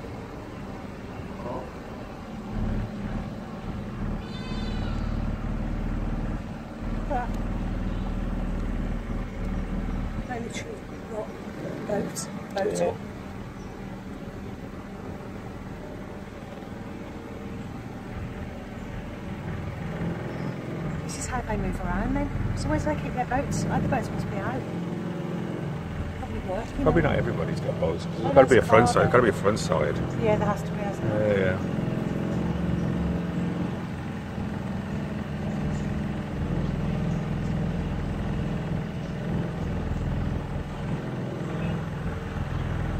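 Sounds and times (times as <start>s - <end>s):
boat engine humming: 0.0s - 42.9s.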